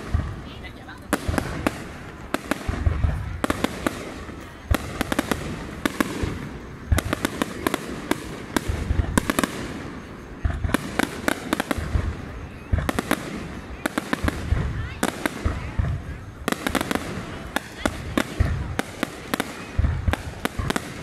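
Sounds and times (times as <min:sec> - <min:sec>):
fireworks bursting with bangs and crackles: 0:00.0 - 0:21.0.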